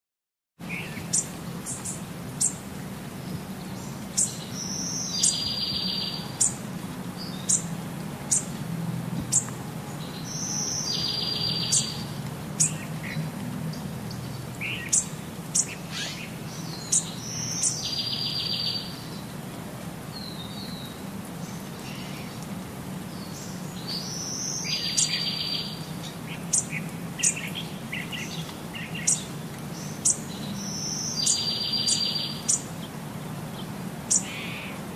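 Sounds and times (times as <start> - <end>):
birds chirping: 0.6 - 8.6, 9.2 - 19.5, 20.1 - 34.9
bird song with buzzy trill: 3.6 - 6.6, 9.3 - 12.9, 14.6 - 19.1, 23.2 - 25.8, 26.4 - 32.7.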